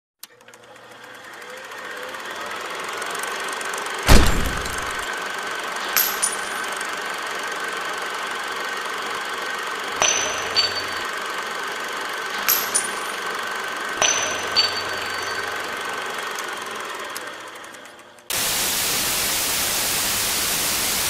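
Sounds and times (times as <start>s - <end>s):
shell casings clinking on floor: 6.0s - 6.8s, 10.0s - 11.1s, 12.4s - 13.3s, 14.0s - 15.7s
steady hiss: 18.3s - 21.0s.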